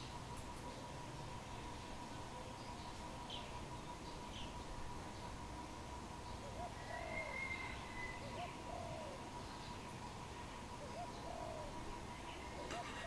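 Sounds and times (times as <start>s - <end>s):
dove cooing: 6.4s - 9.3s, 10.8s - 13.0s.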